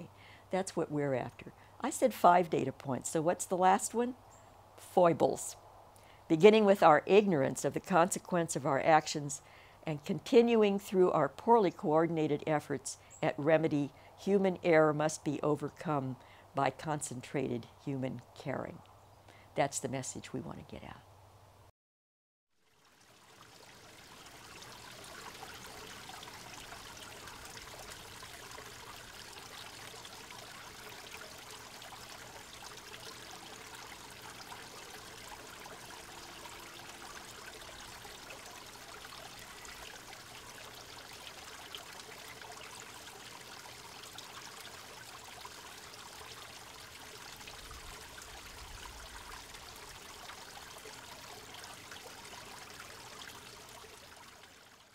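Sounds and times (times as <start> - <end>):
running water: 22.6 - 54.9.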